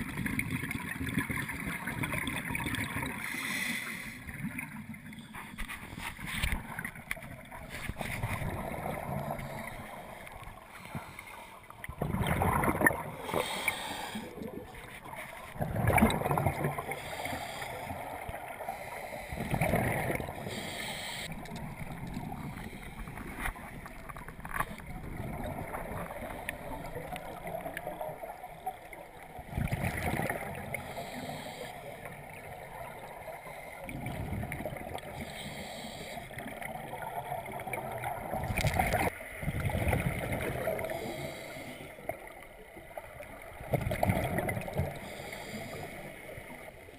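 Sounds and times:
steady watery hiss: 2.9s - 12.0s, 12.7s - 15.6s, 16.3s - 24.9s, 25.5s - 37.0s, 40.6s - 43.6s, 44.6s - 46.9s
exhaled bubbles rushing: 6.5s - 10.4s, 11.9s - 13.6s, 14.2s - 17.0s, 19.4s - 20.5s, 21.3s - 28.3s, 29.2s - 30.8s, 36.7s - 41.0s, 43.5s - 45.0s.

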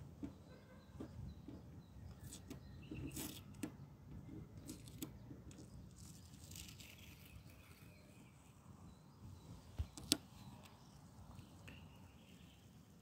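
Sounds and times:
tape peeling off paint: 2.2s - 3.7s, 4.6s - 8.0s.

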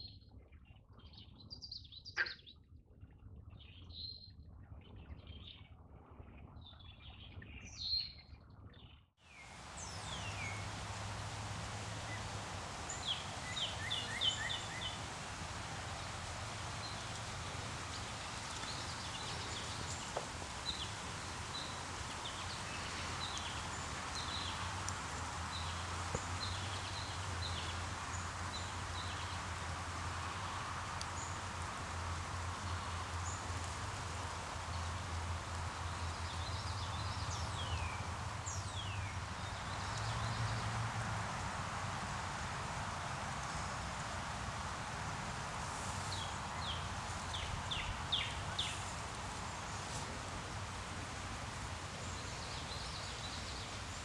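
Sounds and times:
bird calls and trills: 0.0s - 2.7s, 6.6s - 40.5s
birds chirping: 9.3s - 40.7s, 43.0s - 54.0s
steady hiss: 9.3s - 54.0s.

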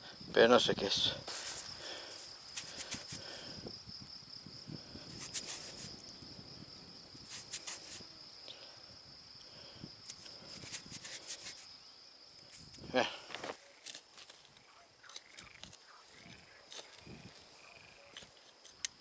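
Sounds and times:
cricket trilling: 0.0s - 19.0s
faint clicks and rustles: 1.3s - 3.4s.

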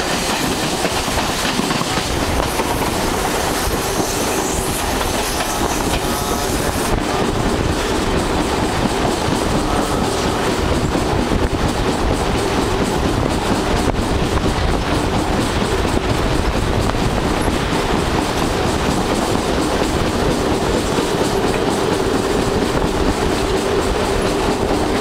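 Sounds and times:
train wheels clickety-clack: 0.0s - 25.0s.

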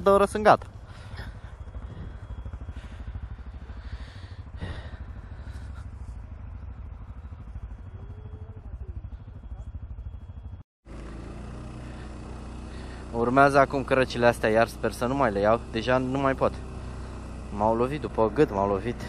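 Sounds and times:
atv engine running: 0.0s - 19.0s.

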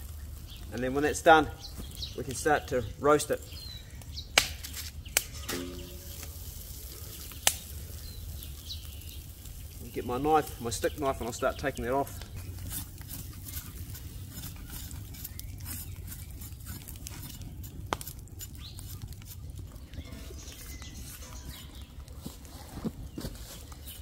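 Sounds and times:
wood fire crackling: 0.0s - 24.0s
sharp pops of fire: 4.3s - 9.6s.

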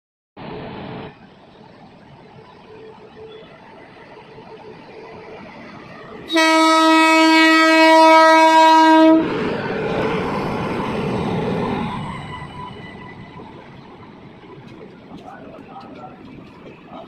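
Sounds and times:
locomotive rumbling past: 0.4s - 17.0s
train horn blast: 6.3s - 9.3s.

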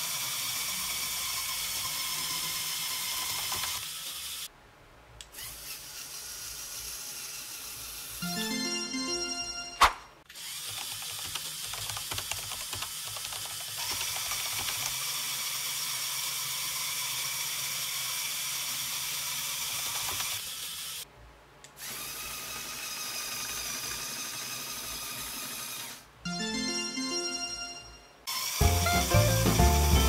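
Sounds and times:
toy motor and gears whining: 0.0s - 4.5s, 5.3s - 8.2s, 10.3s - 21.1s, 21.8s - 26.1s, 28.3s - 30.0s.

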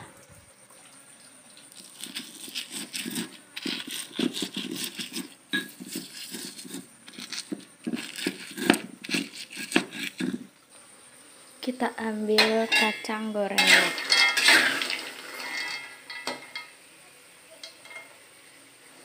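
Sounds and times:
stone pestle grinding in mortar: 1.8s - 10.5s.

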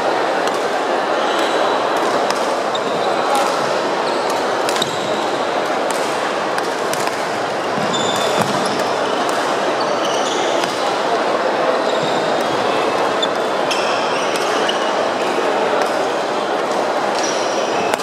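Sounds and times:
hubbub of play and voices: 0.0s - 18.0s
shoes squeaking on floor: 2.7s - 5.3s, 7.6s - 9.1s, 9.8s - 10.8s, 11.8s - 15.0s
racket hitting shuttlecock: 3.4s - 9.6s.

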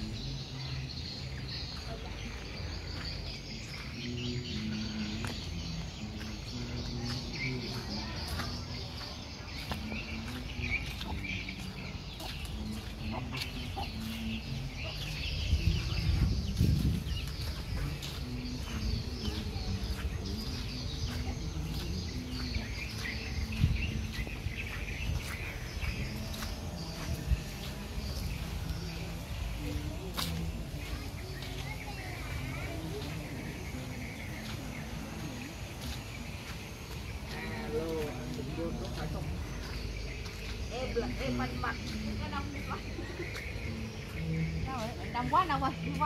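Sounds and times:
small birds chirping: 0.0s - 46.0s
chickens clucking: 7.0s - 16.8s.

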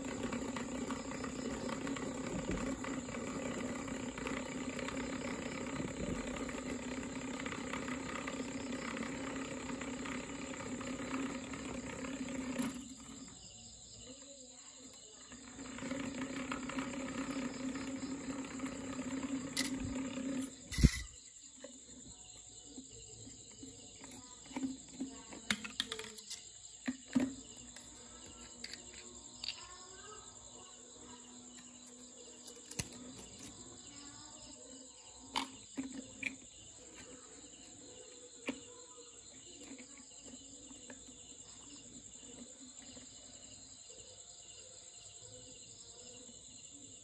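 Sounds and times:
small motor whirring propeller: 0.0s - 13.5s, 15.2s - 21.2s.

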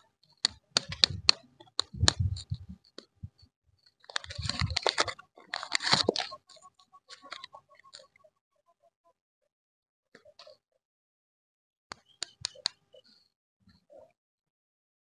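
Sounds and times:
wrapper crinkling: 4.1s - 6.4s.

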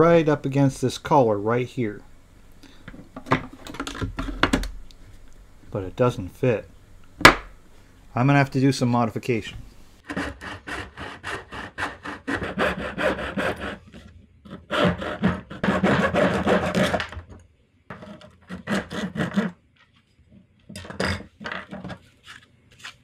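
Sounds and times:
hand saw cutting plastic: 10.0s - 17.2s, 18.0s - 19.6s.

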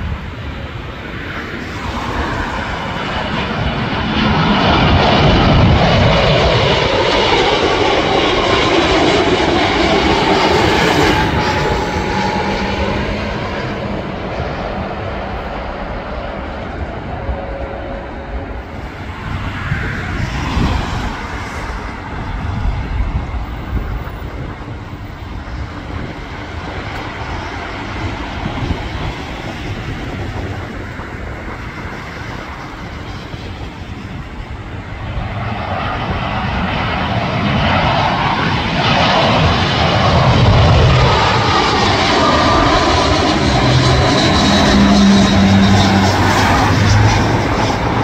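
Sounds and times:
jet engines rumbling: 0.0s - 48.0s.

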